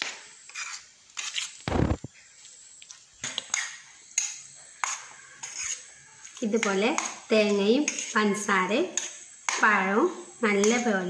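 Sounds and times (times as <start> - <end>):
metal spoon scraping a plate: 0.5 - 1.6, 3.4 - 6.7, 7.4 - 8.2.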